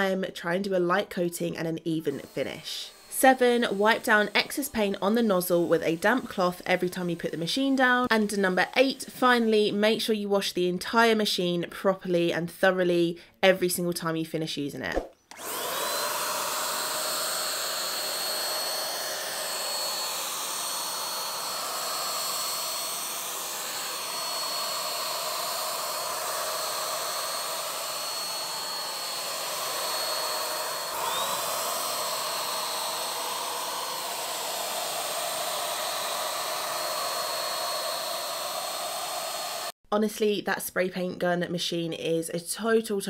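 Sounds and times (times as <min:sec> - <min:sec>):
paint sprayer whirring hiss: 0:15.3 - 0:39.7.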